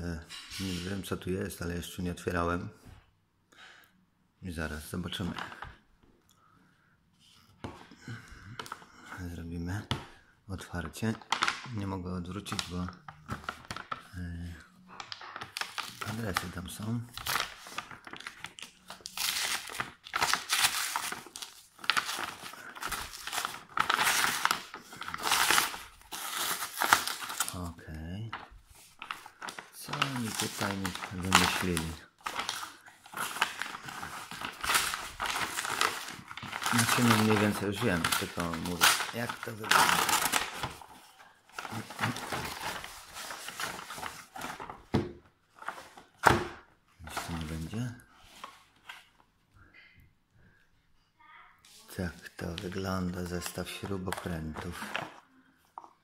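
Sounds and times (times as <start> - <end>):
paper crinkling and tearing: 14.9 - 44.9.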